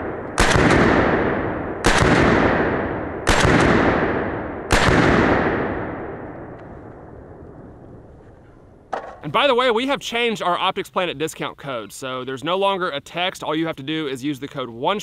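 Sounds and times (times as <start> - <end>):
rifle shots with rolling echo: 0.0 - 9.2.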